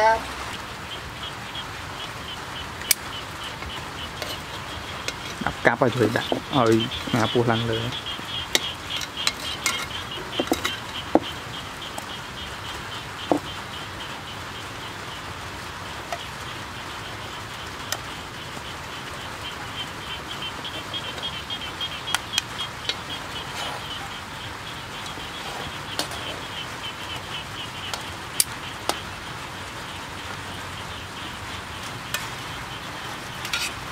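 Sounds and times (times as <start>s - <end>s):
rapid high-pitched chirping: 0.9s - 15.0s, 18.1s - 33.9s
metal tongs scraping a wok: 4.2s - 5.4s, 8.6s - 10.9s, 25.1s - 26.4s, 33.4s - 33.9s.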